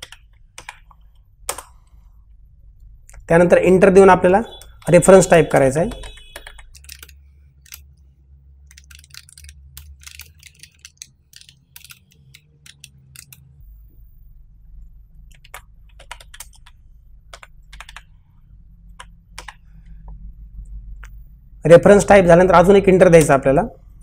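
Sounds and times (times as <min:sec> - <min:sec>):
keyboard typing: 0:00.0 - 0:02.0, 0:04.4 - 0:13.8, 0:15.2 - 0:18.2, 0:18.9 - 0:20.1.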